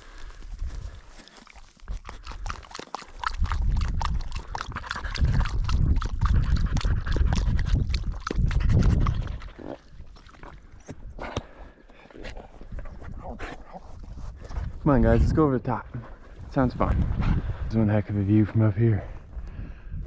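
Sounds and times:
dogs lapping and slurping water: 0:00.6 - 0:11.6.

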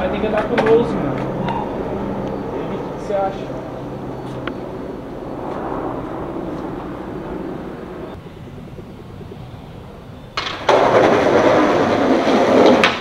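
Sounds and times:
skateboard wheels rolling on asphalt: 0:04.0 - 0:13.0.

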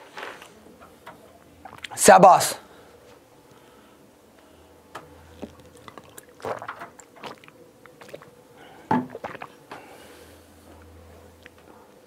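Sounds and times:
man swallowing: 0:01.6 - 0:02.0, 0:05.3 - 0:09.8
water sloshing in plastic bottle: 0:05.3 - 0:09.6.

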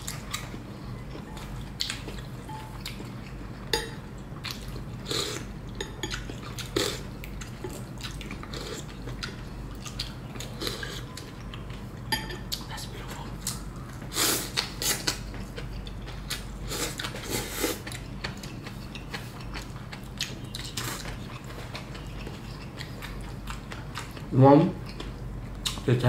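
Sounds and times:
chewing: 0:00.0 - 0:03.6, 0:04.4 - 0:25.9.

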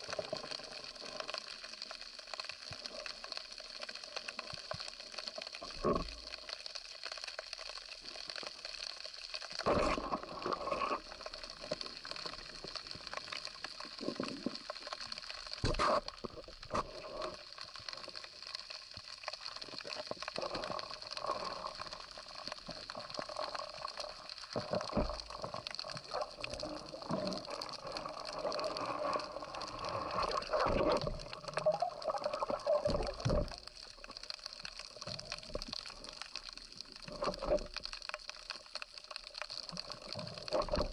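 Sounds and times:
fish struggling knocking and rustling: 0:09.5 - 0:40.9
underwater watery hiss: 0:15.6 - 0:17.5.

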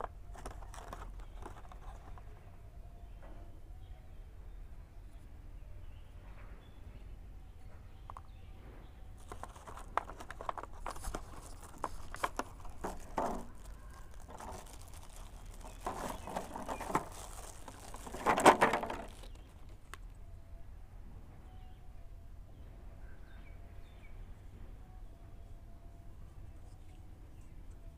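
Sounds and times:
plastic wrapping crinkling: 0:00.0 - 0:02.3, 0:09.2 - 0:20.1.

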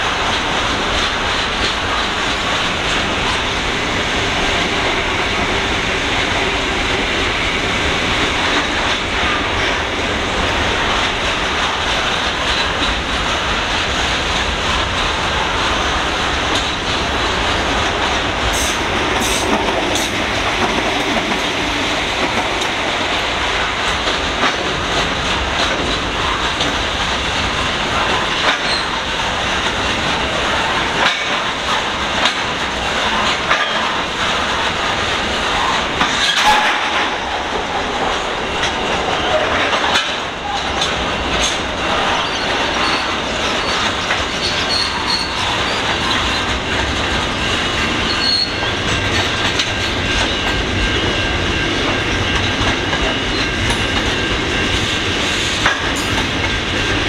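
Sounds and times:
freight train rolling past: 0:00.0 - 0:57.0
wheels clicking over rail joints: 0:08.2 - 0:57.0
high-pitched wheel squeal: 0:44.4 - 0:45.8, 0:48.1 - 0:48.7.

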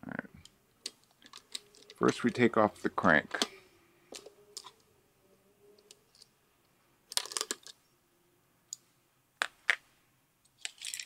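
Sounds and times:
small metallic clicks and rattles: 0:10.5 - 0:11.0.

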